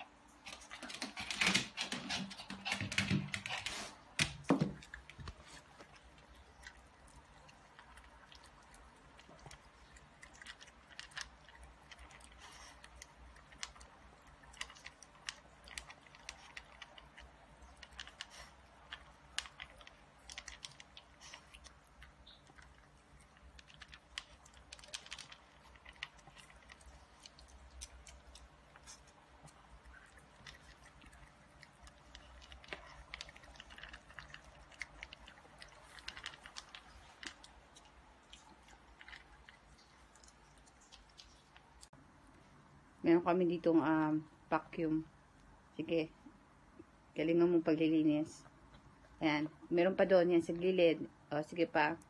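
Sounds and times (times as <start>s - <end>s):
puppy crunching dry kibble: 0.0s - 42.0s
knocks and rustles: 0.5s - 5.5s.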